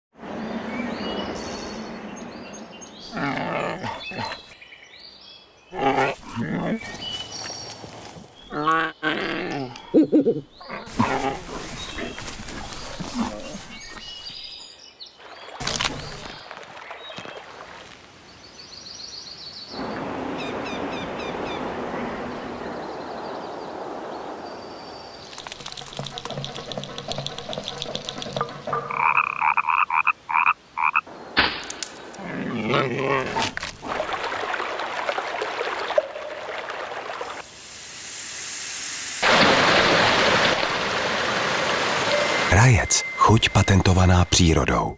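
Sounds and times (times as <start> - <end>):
wild animal calls and growls: 3.0 - 4.6, 5.7 - 7.2, 8.4 - 14.4, 25.3 - 31.0, 32.0 - 34.0
stream rushing over stones: 33.5 - 37.6, 39.2 - 43.0.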